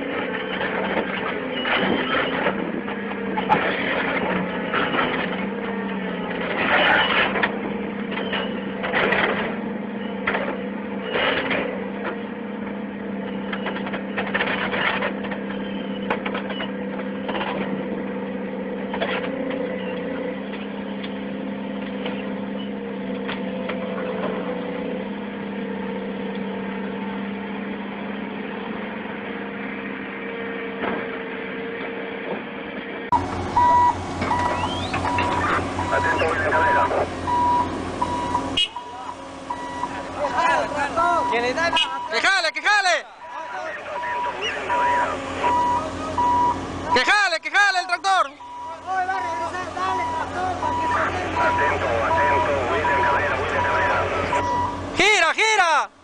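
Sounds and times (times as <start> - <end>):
diesel engine running: 0.0 - 56.0
rapid electronic beeping: 33.6 - 55.3.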